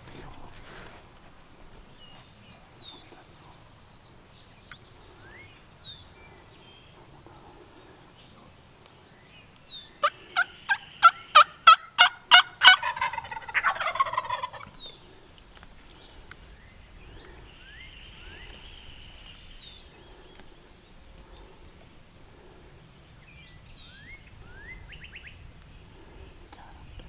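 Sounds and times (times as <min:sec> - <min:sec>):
wild turkey gobbling: 0:10.0 - 0:15.2.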